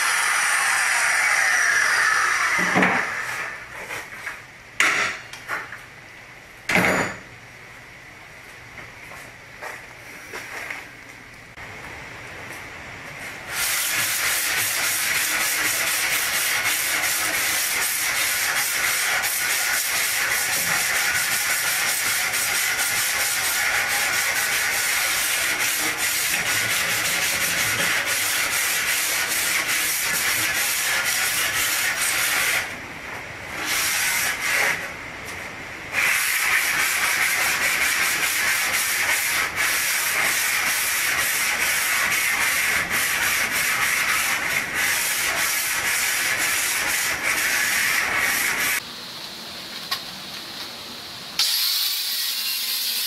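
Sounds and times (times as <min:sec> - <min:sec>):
sanding metal rasping hiss: 0:36.0 - 0:48.8.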